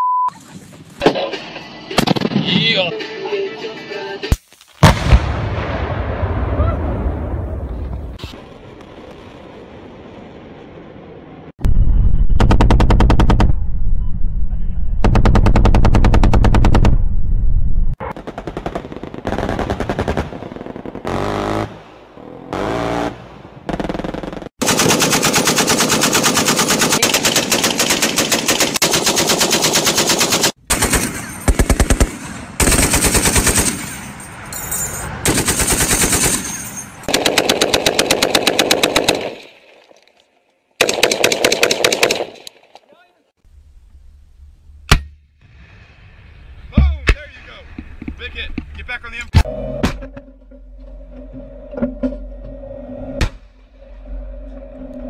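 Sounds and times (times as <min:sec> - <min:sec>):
machine-gun fire: 0:18.0 - 0:21.3, 0:23.7 - 0:33.9, 0:35.3 - 0:36.4, 0:37.1 - 0:39.5, 0:40.8 - 0:42.4.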